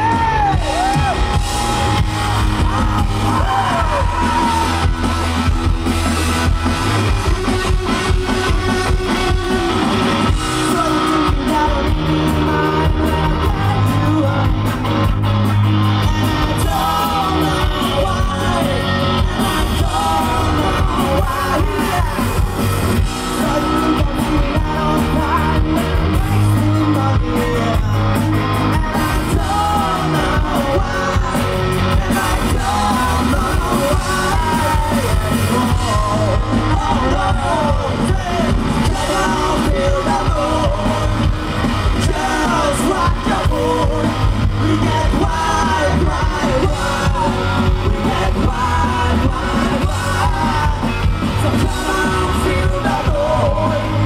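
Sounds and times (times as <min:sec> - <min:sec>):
man shouting vocals: 0:00.0 - 0:05.2
live hard rock band: 0:00.0 - 0:54.0.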